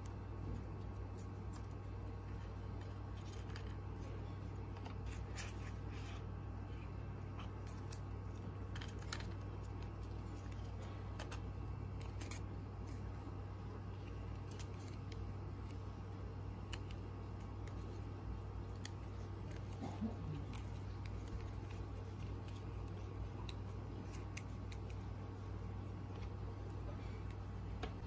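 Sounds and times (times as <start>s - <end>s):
steady low hum: 0.0s - 28.0s
paper and card crinkling: 0.4s - 28.0s.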